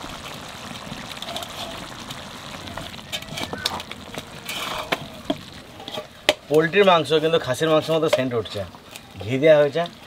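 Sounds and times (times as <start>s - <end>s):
chicken sizzling in pot: 0.0s - 10.0s
metal spatula scraping pot: 1.2s - 1.9s, 2.7s - 8.2s.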